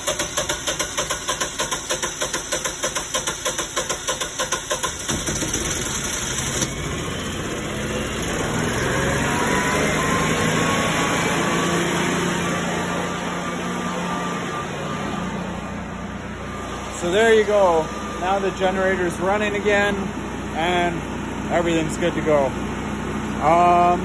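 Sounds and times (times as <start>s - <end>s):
generator engine cranking and running: 0.0s - 24.0s.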